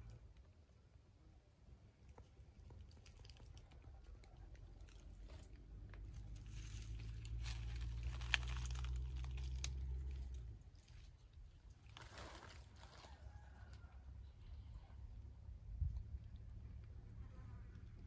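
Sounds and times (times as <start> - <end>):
light crackles: 1.9 - 13.9
wind rumble on microphone: 14.8 - 16.9.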